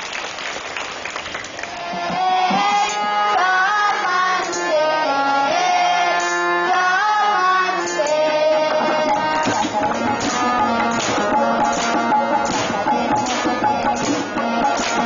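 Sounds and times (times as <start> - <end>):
harmonium melody: 1.7 - 15.0
drum strokes: 8.7 - 15.0.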